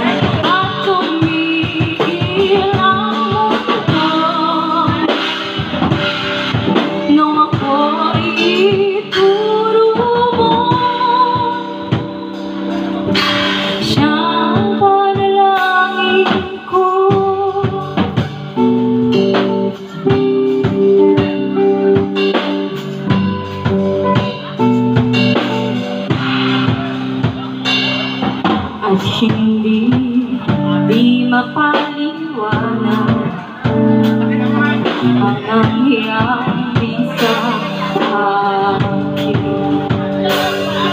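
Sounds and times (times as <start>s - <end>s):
woman singing: 0.0s - 5.9s, 6.7s - 13.0s, 13.7s - 21.7s, 28.7s - 40.9s
drum kit: 0.0s - 40.9s
electric guitar: 0.0s - 40.9s.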